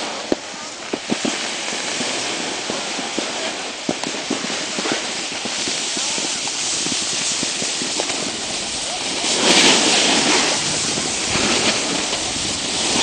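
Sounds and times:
snowboard chattering over bumps: 0.0 - 13.0
snowboard sliding over snow: 0.0 - 13.0.

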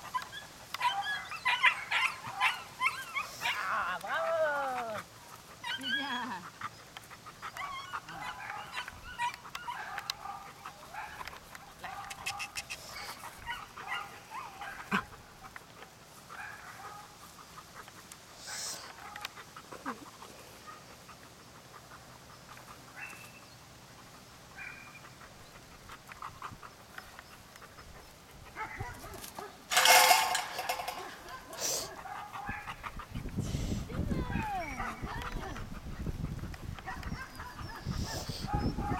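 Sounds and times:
puppy whining and yipping: 0.0 - 3.8, 5.6 - 6.5, 7.4 - 10.4, 12.0 - 15.1, 36.8 - 38.9.

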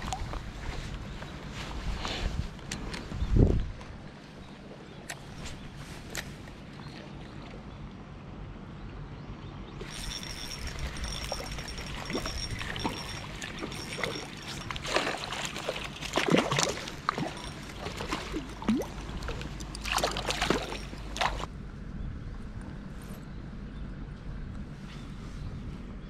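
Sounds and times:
water splashing and trickling: 0.0 - 0.9, 9.8 - 21.5.

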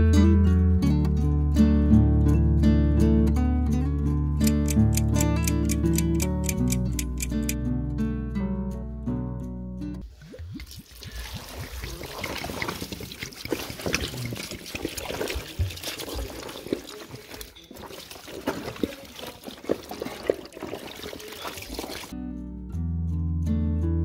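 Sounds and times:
wet clicks of hand working meat: 4.4 - 7.6
juice pouring over meat: 10.5 - 22.2.

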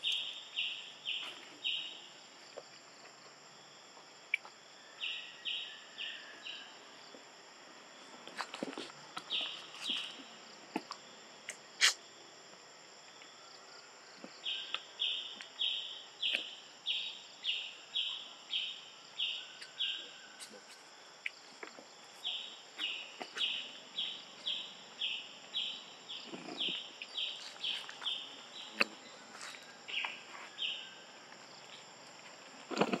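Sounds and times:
high insect drone: 0.0 - 33.0
soft rustle: 8.0 - 10.4.

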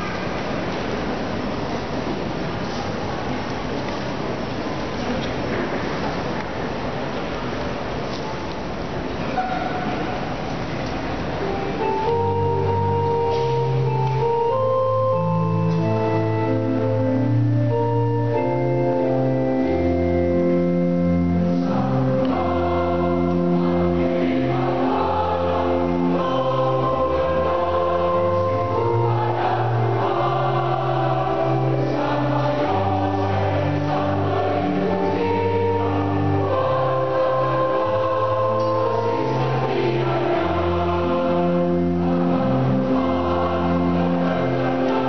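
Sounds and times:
mixed choir singing: 21.3 - 45.0.

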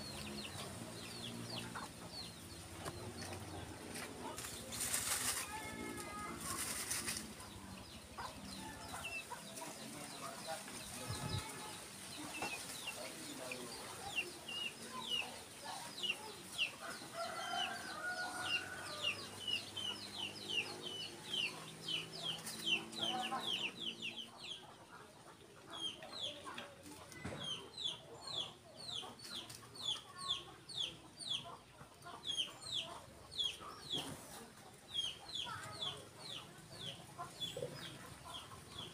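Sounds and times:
chickens clucking: 0.0 - 38.9
rooster crowing: 17.1 - 19.2.

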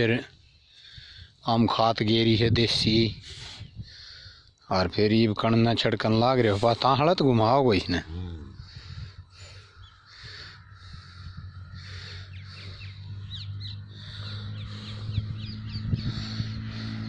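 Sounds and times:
birds chirping: 2.8 - 17.0
low engine-like hum: 8.0 - 17.0.

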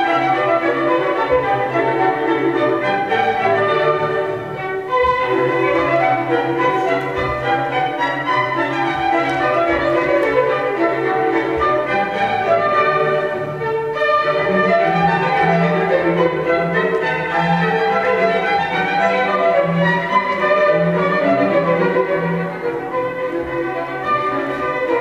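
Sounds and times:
violin string music: 0.0 - 25.0.

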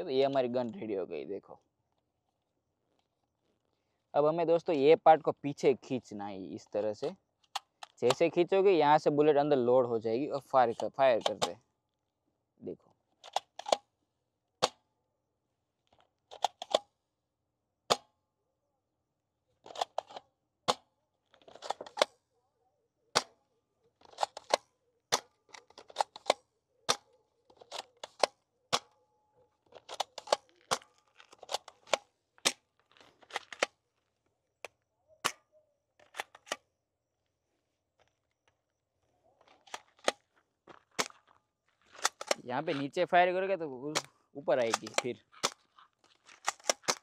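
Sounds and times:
toy gun snapping: 24.1 - 24.6, 29.8 - 32.6, 42.0 - 42.4, 43.9 - 45.6, 46.4 - 47.0.

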